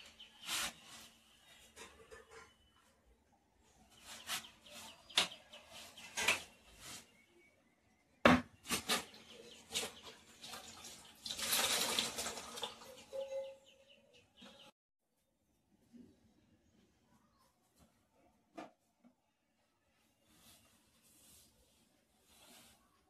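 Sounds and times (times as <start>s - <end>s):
scrubbing on a wall: 0.1s - 1.4s, 3.9s - 7.2s
water sloshing in a bucket: 9.3s - 13.2s.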